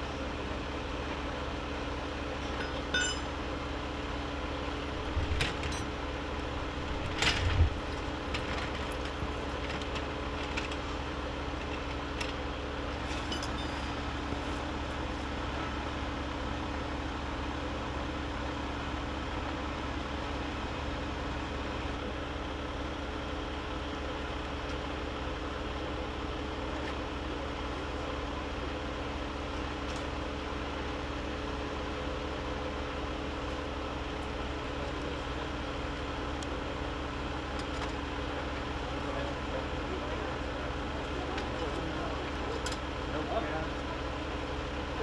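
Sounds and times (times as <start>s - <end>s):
hand tools clinking on metal: 2.5s - 3.3s.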